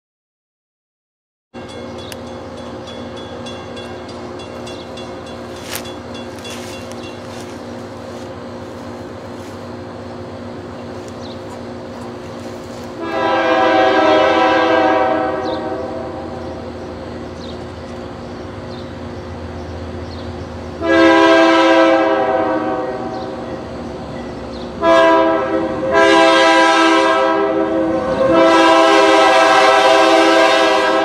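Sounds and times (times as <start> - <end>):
diesel locomotive running: 1.6 - 31.0
locomotive air horn blast: 12.0 - 16.5, 20.8 - 23.4, 24.8 - 31.0.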